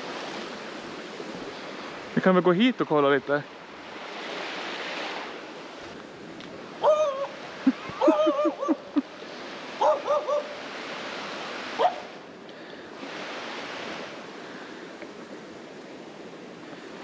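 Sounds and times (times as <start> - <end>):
rapids rushing: 0.0 - 17.0
high yelps: 6.8 - 8.9, 9.8 - 10.6.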